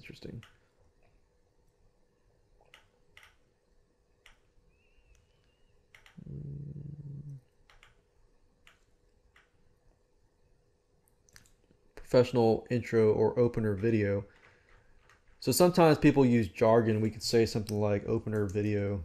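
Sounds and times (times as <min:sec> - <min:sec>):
computer mouse clicks: 0:02.6 - 0:03.4, 0:04.2 - 0:06.2, 0:07.6 - 0:08.0, 0:08.6 - 0:09.6
low steady vocal sound: 0:06.2 - 0:07.4.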